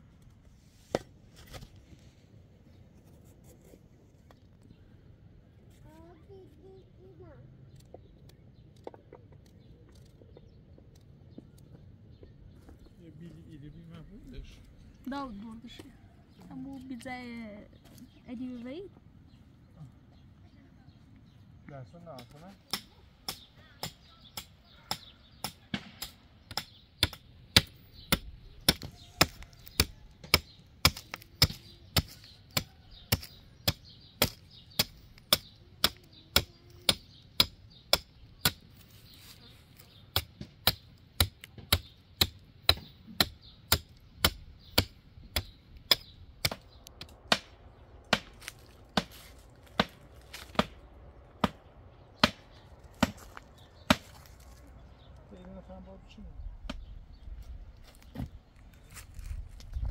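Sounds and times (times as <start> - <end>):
hatchet chopping wood: 22.2 - 38.8, 40.1 - 50.8, 51.4 - 54.1.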